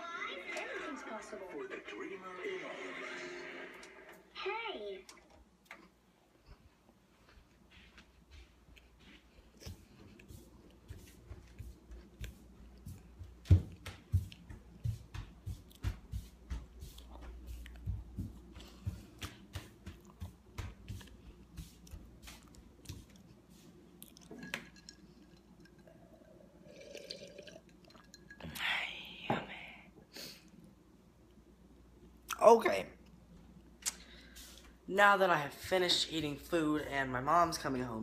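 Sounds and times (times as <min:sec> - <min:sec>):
wet chewing and smacking: 0:21.0 - 0:25.8.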